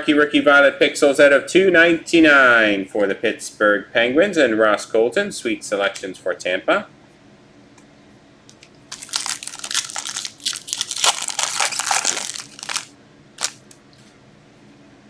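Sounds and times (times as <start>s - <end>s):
plastic wrapper crackling: 8.9s - 13.7s.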